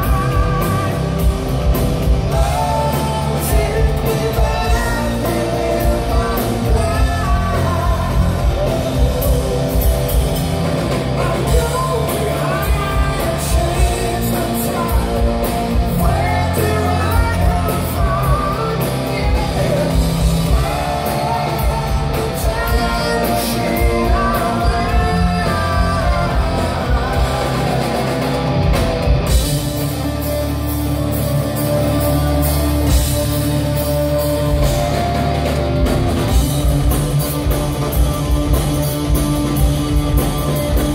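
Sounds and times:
lead singer singing: 0:00.0 - 0:30.4
drum kit: 0:00.0 - 0:40.9
live rock band: 0:00.0 - 0:40.9.

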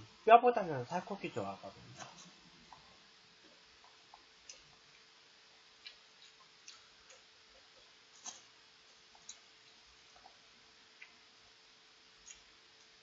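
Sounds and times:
eating clicks and chewing: 0:03.8 - 0:11.2, 0:12.2 - 0:13.0.

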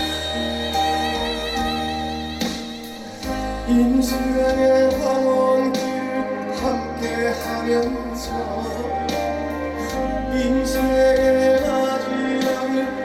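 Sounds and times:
song backing track over pa: 0:00.0 - 0:13.0
man singing into a microphone: 0:03.2 - 0:13.0.

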